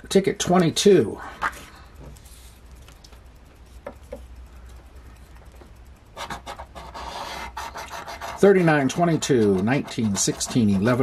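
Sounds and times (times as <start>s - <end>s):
scraper rubbing lottery ticket: 6.2s - 11.0s.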